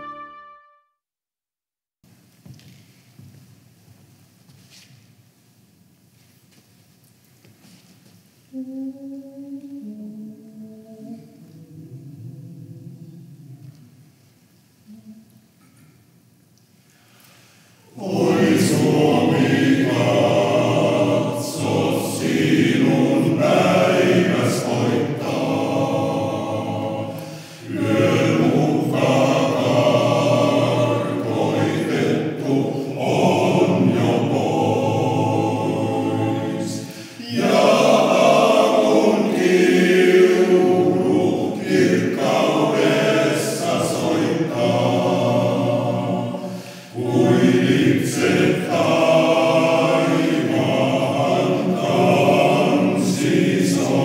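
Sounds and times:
male choir singing in harmony: 17.8s - 54.0s.

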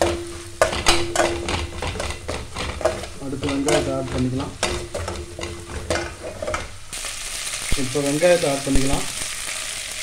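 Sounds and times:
ladle scraping and knocking a pot: 0.0s - 6.8s
spices sizzling in hot oil: 0.0s - 10.0s.

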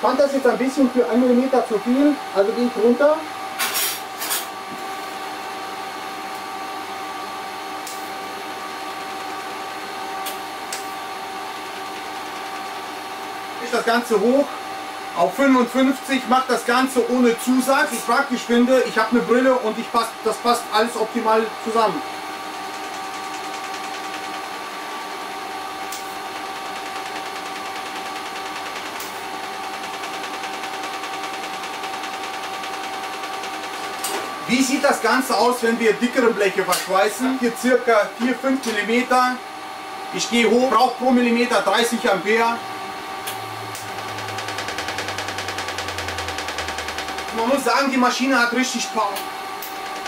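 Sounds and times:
welding arc buzzing and hissing: 0.0s - 39.4s, 40.3s - 50.0s
cooling unit fan hum: 0.0s - 50.0s
steady whine: 40.2s - 50.0s.

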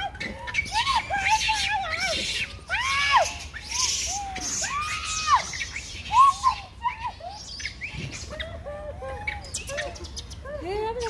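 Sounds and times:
monkeys cooing and squealing: 0.0s - 11.0s
harsh hissy shriek: 2.0s - 6.7s.

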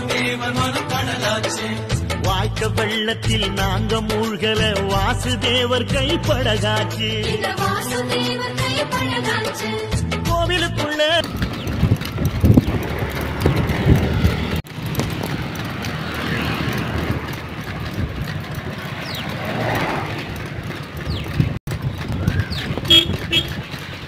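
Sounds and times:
cart rattling: 10.9s - 24.0s
hooves clopping on asphalt: 11.2s - 24.0s.

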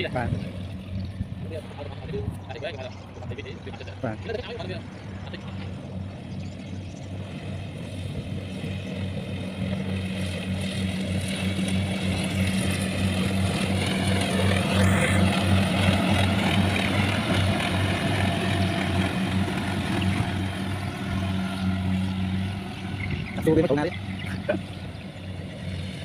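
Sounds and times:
harvester engine drone: 0.0s - 26.0s
high-pitched whine: 11.6s - 26.0s.

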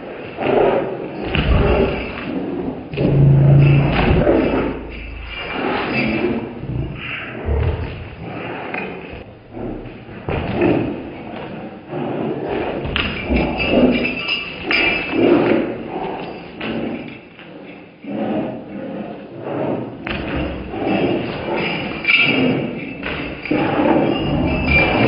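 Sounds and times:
dogs thudding and scuffling: 1.2s - 11.5s, 20.0s - 25.0s.

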